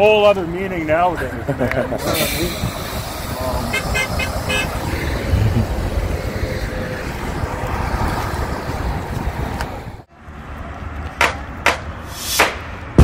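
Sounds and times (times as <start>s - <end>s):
road traffic noise: 0.0s - 13.0s
wind buffeting microphone: 1.2s - 10.1s
sharp knocks: 11.2s - 13.0s.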